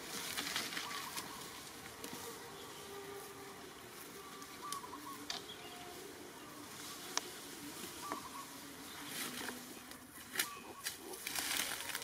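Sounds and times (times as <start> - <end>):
flying insects buzzing: 0.0 - 12.0
steady outdoor hiss: 0.0 - 12.0.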